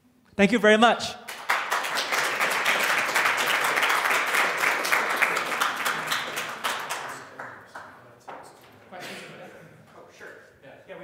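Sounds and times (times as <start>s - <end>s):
audience applauding: 1.3s - 8.6s.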